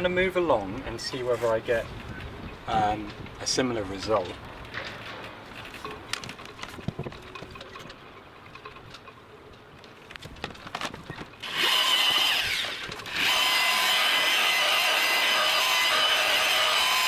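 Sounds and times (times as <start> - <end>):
orbital polisher motor whine: 11.4 - 17.0.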